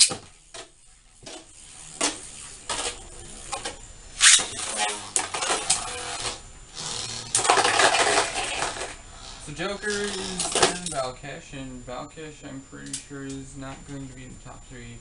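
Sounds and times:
spinning tops clattering: 7.3 - 9.0.

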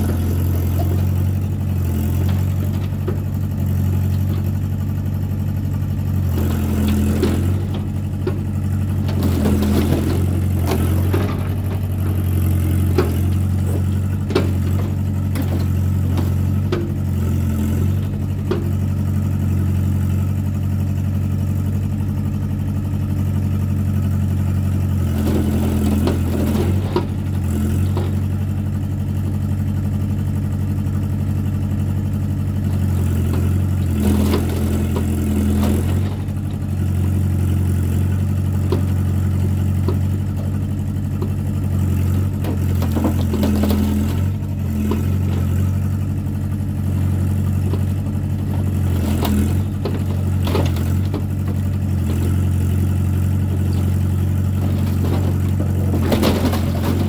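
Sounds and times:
diesel engine running: 0.0 - 57.0
metal clatter and scraping: 6.5 - 17.0, 25.2 - 28.4, 38.5 - 46.0, 53.4 - 57.0.

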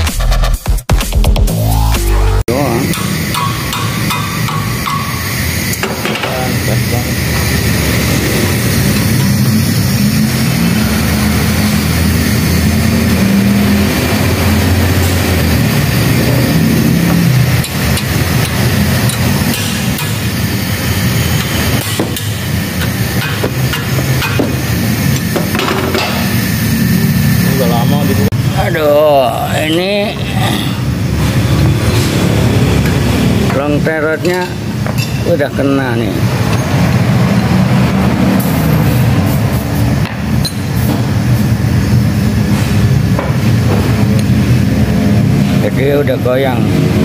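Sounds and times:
motor humming steadily: 2.5 - 35.1
sharp metallic knocks: 2.8 - 6.4, 21.4 - 26.4.

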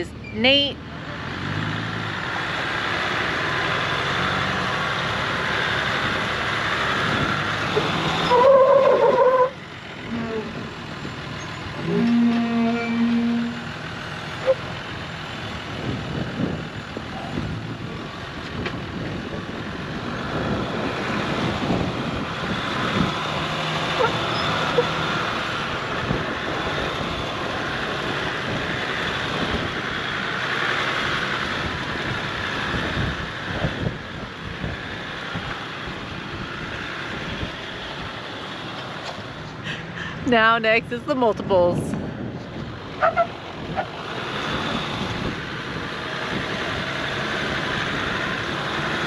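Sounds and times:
engine running under load: 0.0 - 49.0
wind buffeting microphone: 15.6 - 24.2, 31.4 - 38.1.

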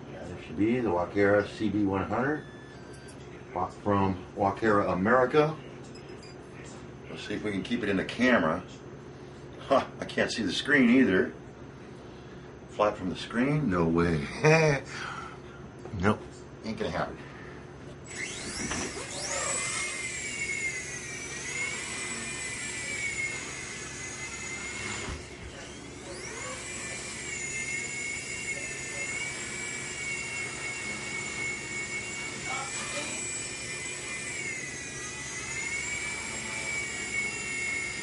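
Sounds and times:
rc helicopter motor whine: 1.8 - 3.2, 18.1 - 38.0.

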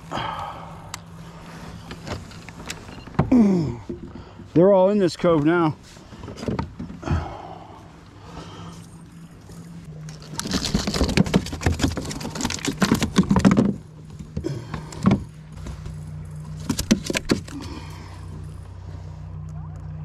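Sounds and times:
hooks and pliers rattling: 10.1 - 18.5.

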